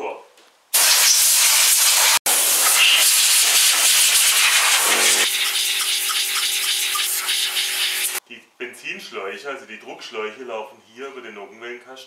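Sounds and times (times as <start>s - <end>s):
compressed-air blow gun hissing: 0.8s - 8.2s.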